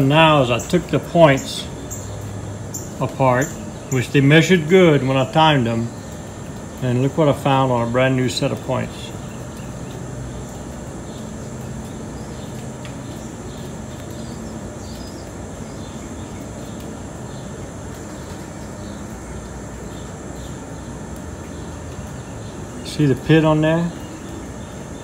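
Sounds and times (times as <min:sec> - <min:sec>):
background hum and hiss: 0:00.0 - 0:25.0.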